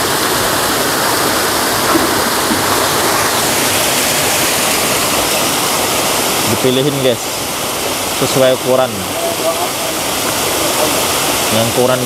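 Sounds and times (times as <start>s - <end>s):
fish splashing: 0.0s - 8.2s
fast-flowing water rushing: 0.0s - 12.0s.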